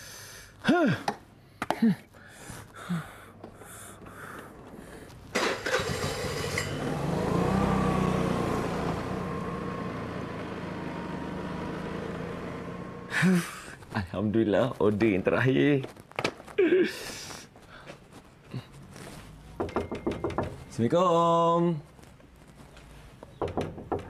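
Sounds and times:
scooter engine pulling away: 0:05.3 - 0:13.2.

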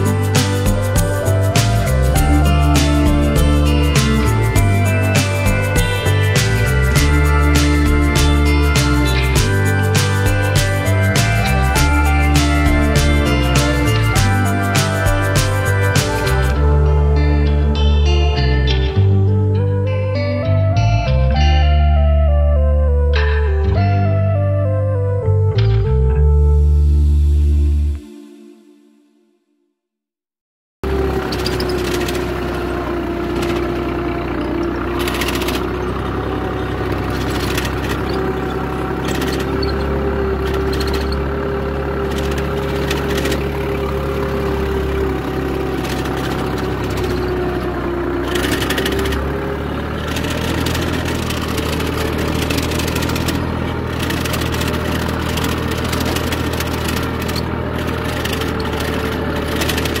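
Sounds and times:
cultivator rattling: 0:00.0 - 0:16.8, 0:30.8 - 1:00.0
tractor engine running: 0:00.0 - 0:28.0, 0:30.8 - 1:00.0.

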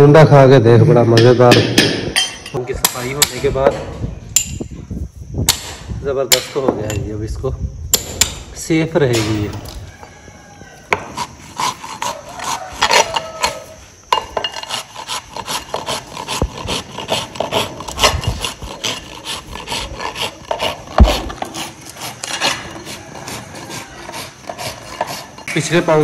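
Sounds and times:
rasp filing a hoof: 0:10.9 - 0:25.5.

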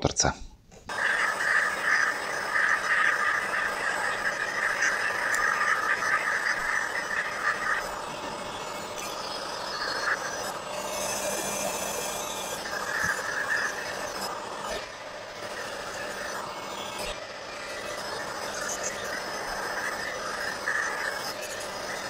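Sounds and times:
heat gun blowing: 0:00.9 - 0:22.0.

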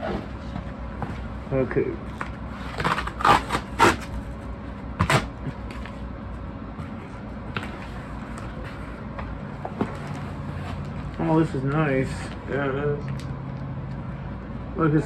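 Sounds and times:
cardboard tear strip ripping: 0:02.8 - 0:04.1.

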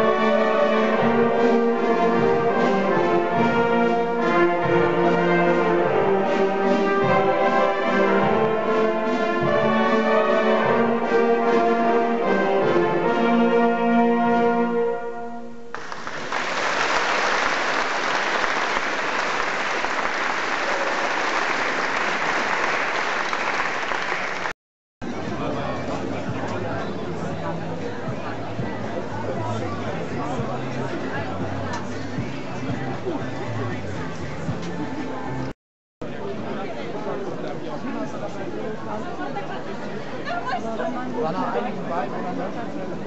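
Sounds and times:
brass ensemble playing: 0:00.0 - 0:15.7
audience applause: 0:15.7 - 0:24.6.

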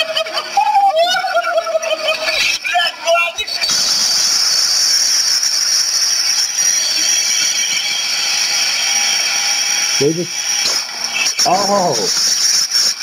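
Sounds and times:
loud steady hiss: 0:03.6 - 0:13.0.

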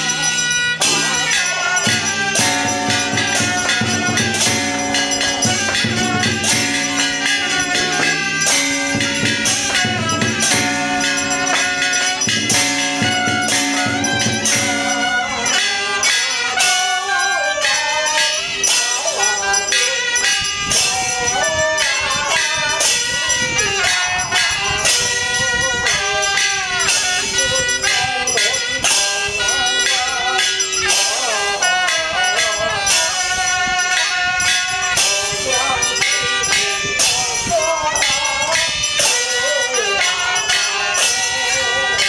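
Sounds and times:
wavering pitched melody: 0:00.0 - 0:20.3
cymbals and percussion beating: 0:00.0 - 0:42.0.

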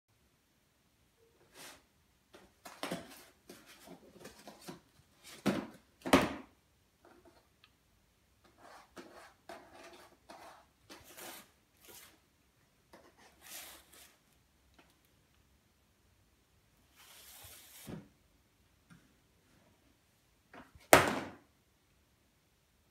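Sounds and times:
cardboard tube scraping on floor: 0:08.8 - 0:12.2, 0:13.3 - 0:14.2, 0:16.9 - 0:18.1.

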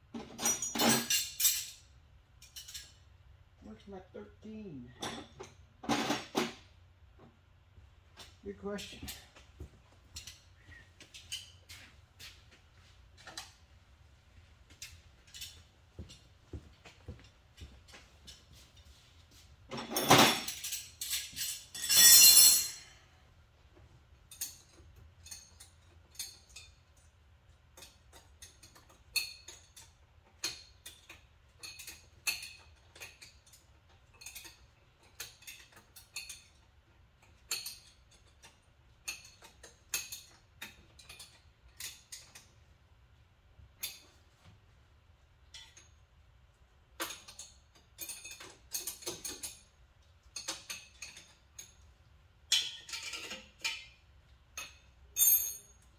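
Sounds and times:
metal tools clinking: 0:00.2 - 0:03.0, 0:10.1 - 0:12.4, 0:14.8 - 0:16.2, 0:19.7 - 0:23.0, 0:27.8 - 0:42.5, 0:45.4 - 0:46.0, 0:47.0 - 0:54.0, 0:54.6 - 0:55.9.

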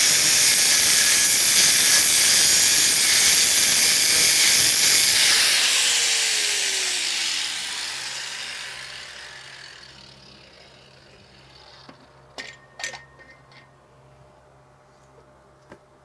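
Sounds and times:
angle grinder grinding metal: 0:00.0 - 0:12.0
grinder winding down: 0:00.0 - 0:12.0
sharp metallic clanks: 0:11.7 - 0:13.8.

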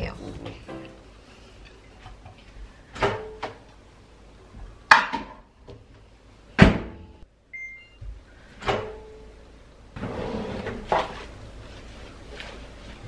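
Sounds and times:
short keypad beeps: 0:07.6 - 0:08.0.

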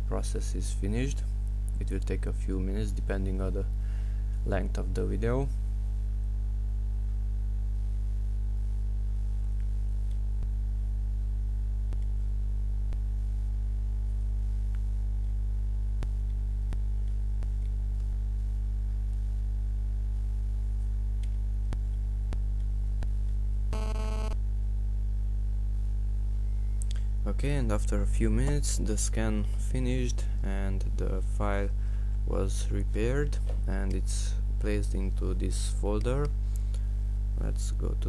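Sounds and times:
low electrical hum: 0:00.0 - 0:38.0
buzzy blip: 0:23.7 - 0:24.4
faint clicks: 0:26.8 - 0:27.1.

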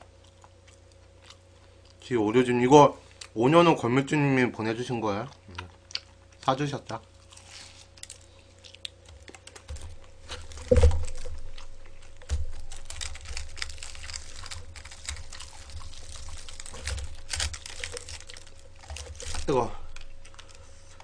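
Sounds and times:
fried chicken crackling being eaten: 0:05.3 - 0:20.6
heavy thump: 0:10.6 - 0:11.4.

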